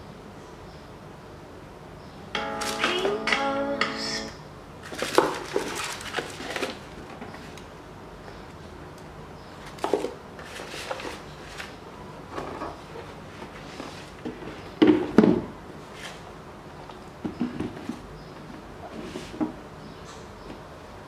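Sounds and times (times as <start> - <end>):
paper and tissue rustling: 4.8 - 7.5, 9.7 - 11.8.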